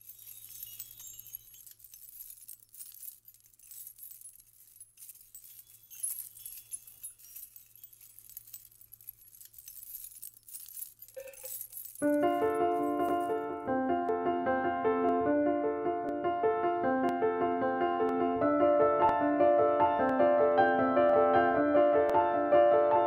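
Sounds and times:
metal bangles jingling: 0:00.0 - 0:13.7.

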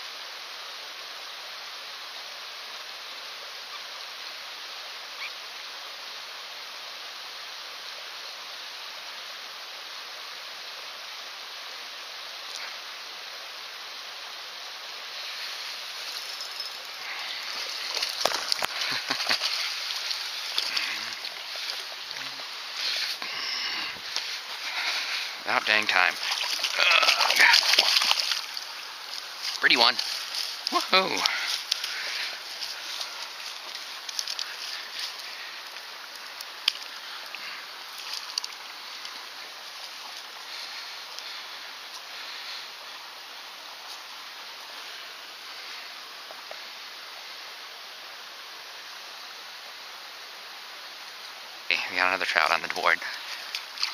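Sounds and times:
flowing water rushing: 0:00.0 - 0:53.9
fish thrashing and splashing: 0:16.0 - 0:23.1, 0:26.1 - 0:35.2, 0:53.3 - 0:53.9.

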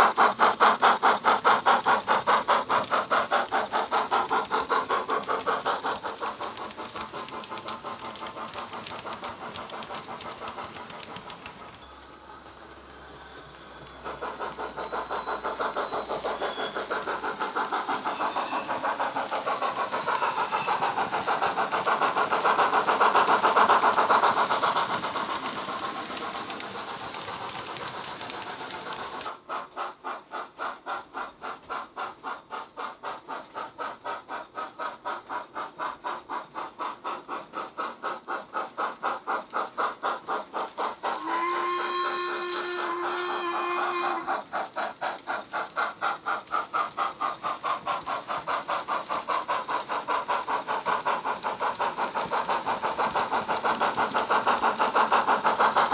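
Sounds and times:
steady whistle tone: 0:00.0 - 0:30.3, 0:40.7 - 0:44.5
model train exhaust chuffs: 0:00.0 - 0:55.9.

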